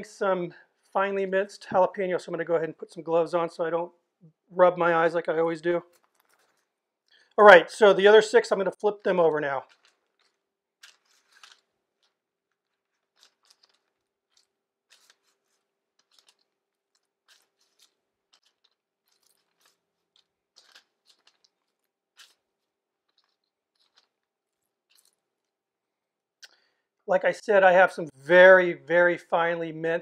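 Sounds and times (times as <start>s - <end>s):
paper crinkling: 5.9s - 7.2s, 9.6s - 25.5s.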